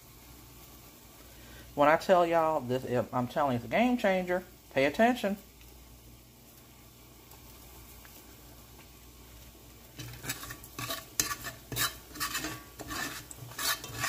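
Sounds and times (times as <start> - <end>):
grease sizzling: 0.0 - 14.0
metal spoon scraping skillet: 9.9 - 14.0.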